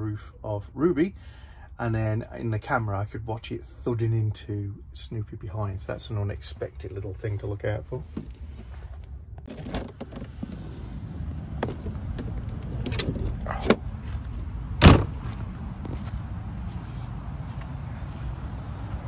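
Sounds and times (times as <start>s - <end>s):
footstep knocks: 13.7s - 16.2s
door slamming shut: 14.8s - 15.2s.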